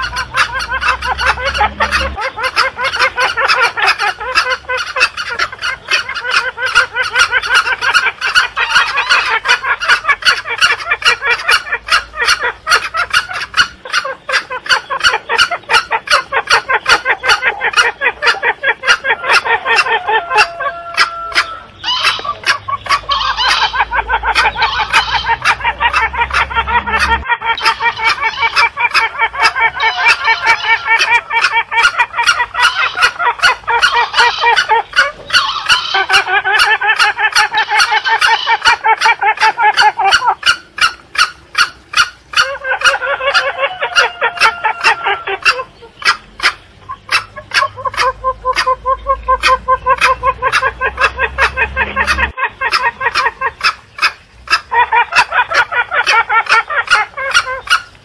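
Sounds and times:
junglefowl clucks and cackles: 0.0s - 58.0s.

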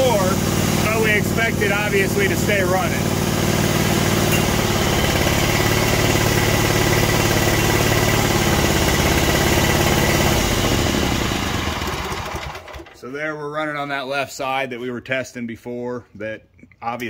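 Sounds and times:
mower engine running: 0.0s - 13.0s.

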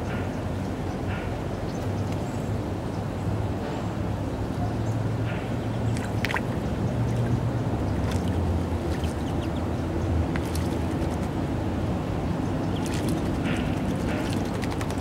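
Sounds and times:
stream water running: 5.0s - 15.0s
birds splashing in water: 5.3s - 11.6s, 12.6s - 15.0s
bird wings flapping in water: 6.0s - 6.6s, 8.0s - 9.6s, 10.2s - 11.5s, 12.7s - 15.0s.

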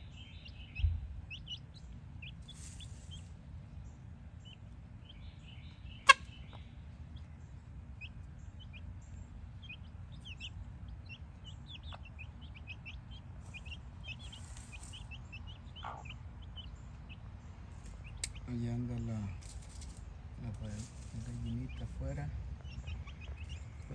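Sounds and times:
chicks peeping: 0.0s - 23.9s
hen clucking: 5.9s - 6.7s, 9.6s - 18.5s, 22.6s - 23.9s.

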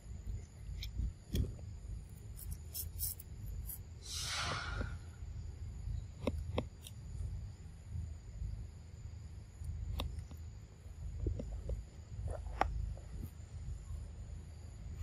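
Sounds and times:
low steady rumble: 0.0s - 15.0s
breathy exhale: 4.0s - 5.2s.

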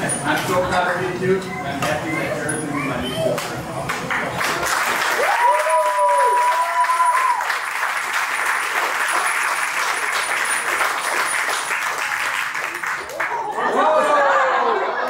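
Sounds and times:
people applauding: 3.9s - 13.7s
drawn-out cheer: 5.1s - 7.7s.

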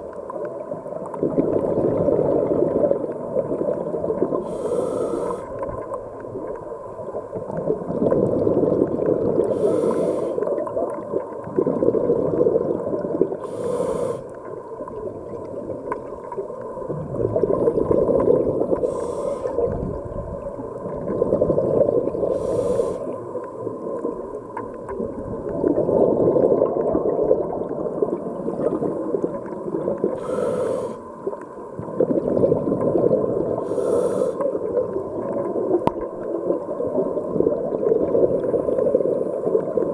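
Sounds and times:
gurgle of exhaled bubbles: 0.0s - 39.9s
regulator inhalation hiss: 4.4s - 5.6s, 9.5s - 10.5s, 13.4s - 14.4s, 18.8s - 19.7s, 22.3s - 23.2s, 30.2s - 31.1s, 33.6s - 34.6s.

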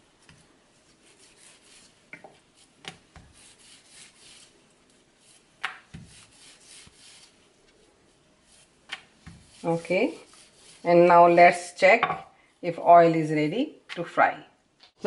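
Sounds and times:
rolling pin swishing on dough: 0.0s - 11.7s.

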